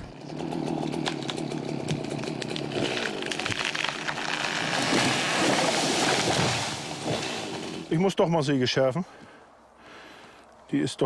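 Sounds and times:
chainsaw cutting wood: 0.0 - 7.9.

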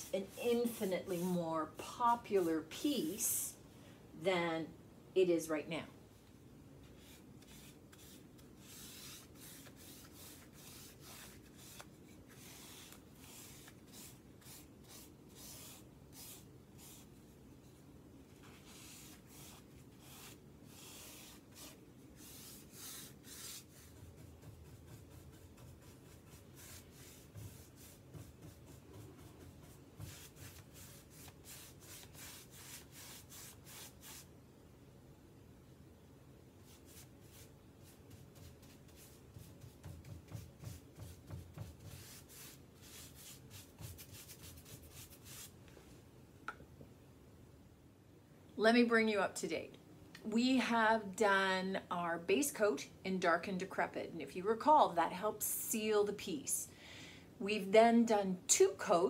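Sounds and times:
paintbrush strokes on wood: 6.8 - 17.1, 18.3 - 34.3, 36.6 - 45.6.

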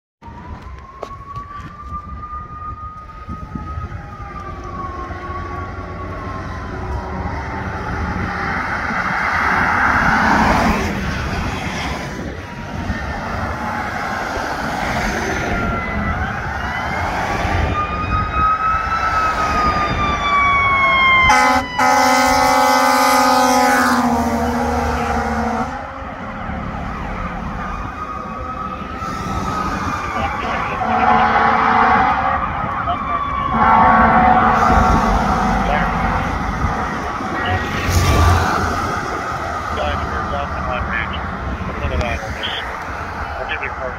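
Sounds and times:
fire engine siren wailing: 0.2 - 43.9
traffic noise: 0.2 - 43.9
long horn blast: 21.2 - 25.9, 30.2 - 32.3, 33.5 - 36.7.

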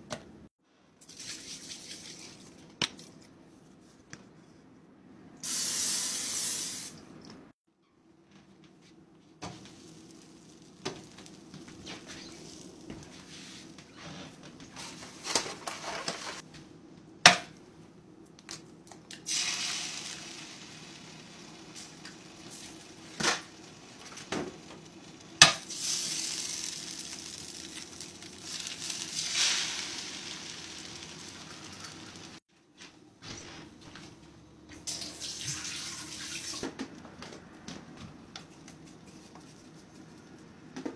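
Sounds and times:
egg sizzling on griddle: 9.4 - 13.4, 19.2 - 32.4.

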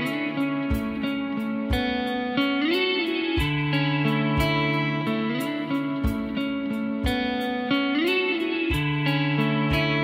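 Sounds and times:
guitar tune with sliding note: 0.0 - 10.0
soft low thumping beat: 0.0 - 10.0.

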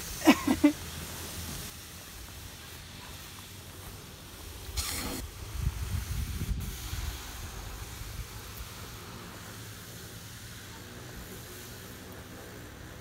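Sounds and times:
short hiss: 0.0 - 12.2
wind buffeting microphone: 5.2 - 8.5.

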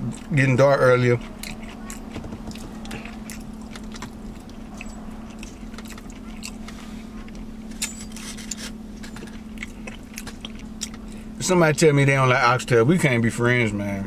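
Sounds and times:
person chewing wet smacks: 0.0 - 7.8, 8.5 - 11.2
low steady hum: 0.0 - 14.0.

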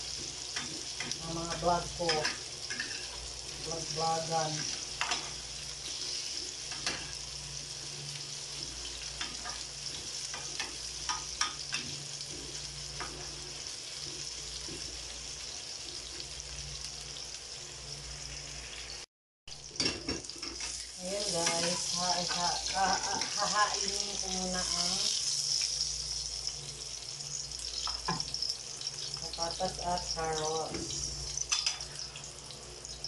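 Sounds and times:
vegetables sizzling in oil: 0.0 - 33.0
spoon scraping pan: 0.2 - 3.3.

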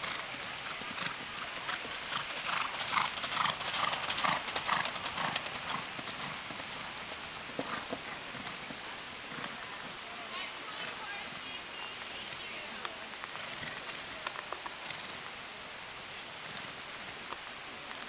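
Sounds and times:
horse hoofbeats cantering: 0.0 - 9.9.

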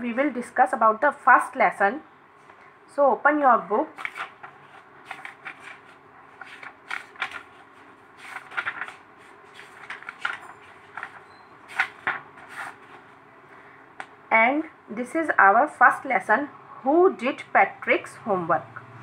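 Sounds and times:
faint steady hum: 0.0 - 19.0
paper pages rustling: 3.9 - 13.2.

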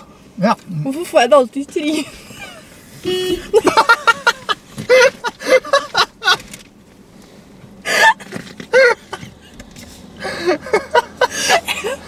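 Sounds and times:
people laughing: 2.4 - 6.4.

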